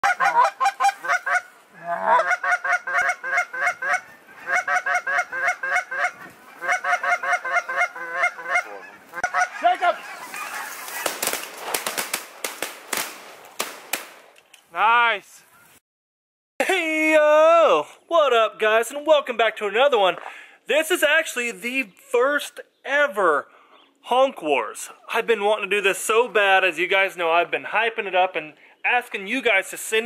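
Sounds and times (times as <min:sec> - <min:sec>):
geese honking: 0:00.0 - 0:11.5.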